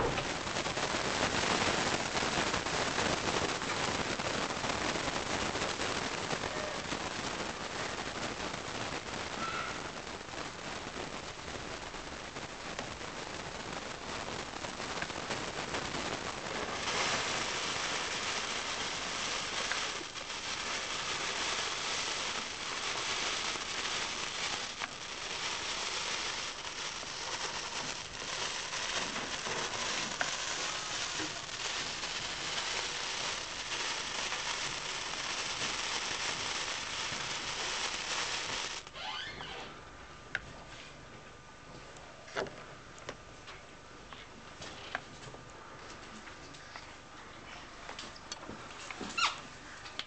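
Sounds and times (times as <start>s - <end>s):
sparkler fizzing and crackling: 0.0s - 39.6s.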